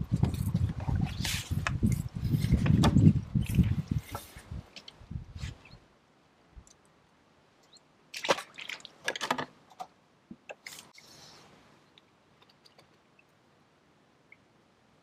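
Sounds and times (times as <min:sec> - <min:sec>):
rustles knocks and watery slaps: 0:08.1 - 0:11.0.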